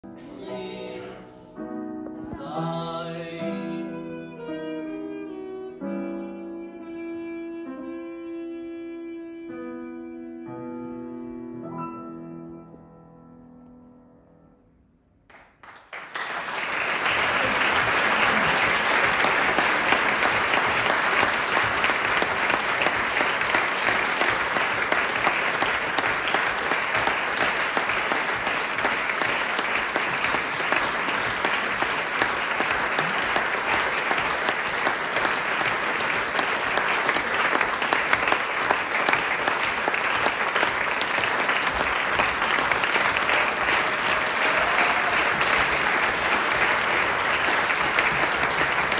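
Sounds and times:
audience applauding: 15.3s - 48.9s.

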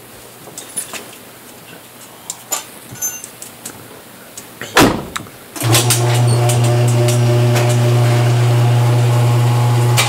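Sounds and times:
car keys jingling: 2.5s - 3.6s
loud thump: 4.8s - 5.3s.

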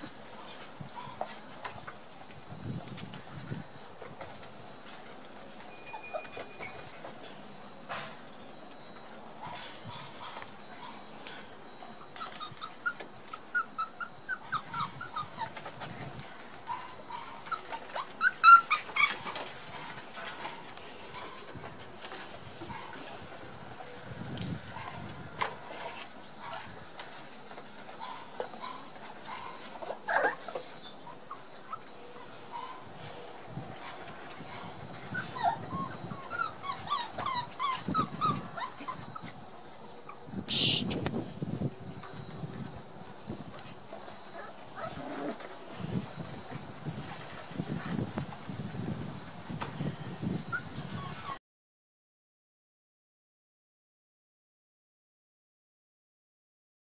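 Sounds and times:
puppies yipping and whining: 5.6s - 7.2s, 11.7s - 15.9s, 16.6s - 20.4s, 28.0s - 32.9s, 33.8s - 40.8s, 43.9s - 45.5s, 50.5s - 51.4s.

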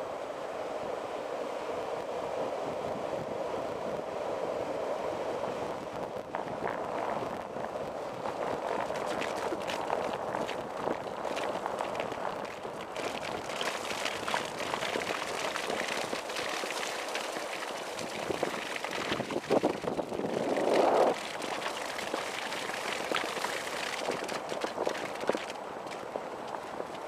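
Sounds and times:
wheels rolling over wet sand: 6.3s - 27.0s.

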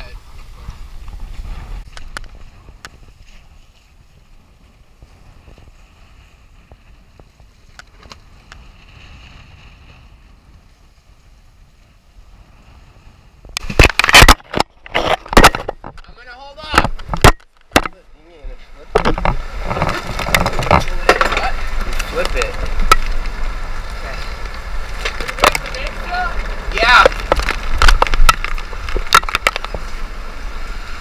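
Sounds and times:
storm wind gusts on microphone: 0.0s - 17.4s, 18.4s - 31.0s
faint low boat rumble: 15.8s - 31.0s
small clicks and knocks: 27.0s - 29.8s.

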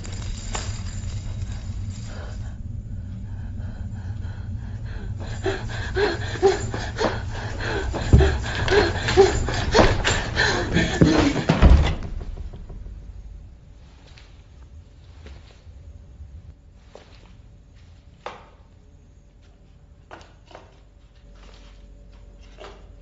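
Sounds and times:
heavy thumps: 4.7s - 13.8s.

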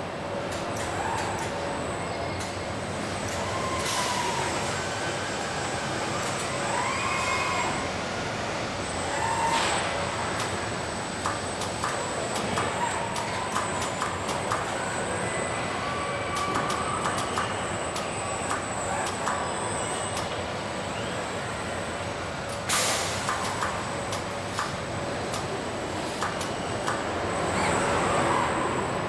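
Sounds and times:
steady machinery noise: 0.0s - 29.0s
air hiss: 22.7s - 23.5s
sharp clicks of tooling: 23.2s - 25.5s
robot whines: 27.4s - 29.0s.

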